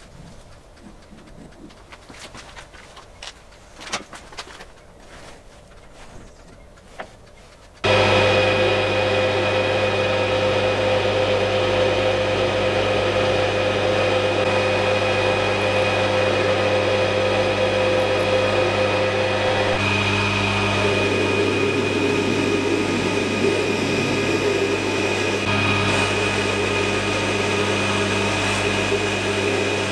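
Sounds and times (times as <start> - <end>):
lathe motor hum: 6.8 - 29.9
high drilling whine: 7.8 - 29.9.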